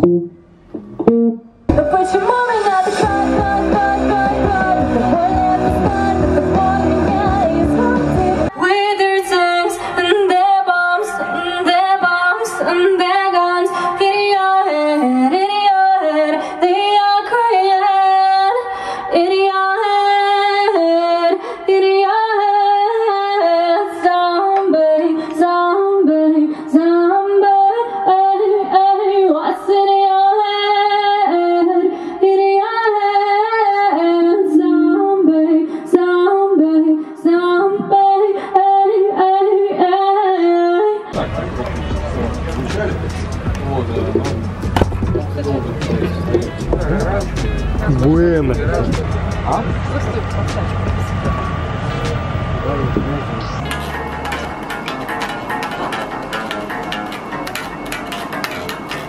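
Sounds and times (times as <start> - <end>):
woman singing: 1.7 - 41.1.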